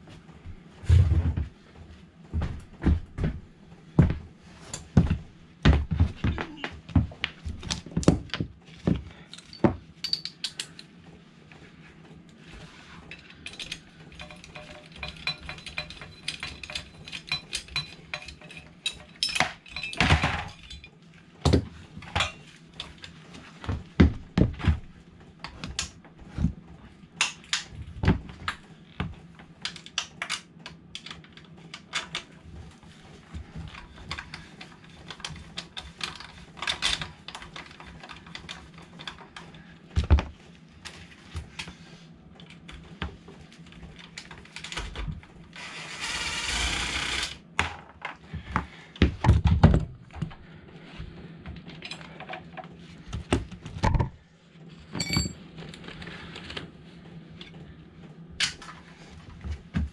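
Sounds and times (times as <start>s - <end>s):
hand tools clinking on metal: 13.2s - 20.9s, 55.0s - 55.4s.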